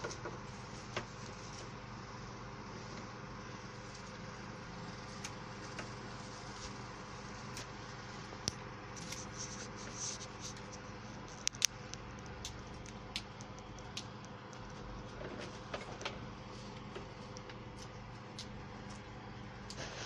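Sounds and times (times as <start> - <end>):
steady hum: 0.0 - 20.0
leaves and thorns stripped from stems: 5.0 - 15.2.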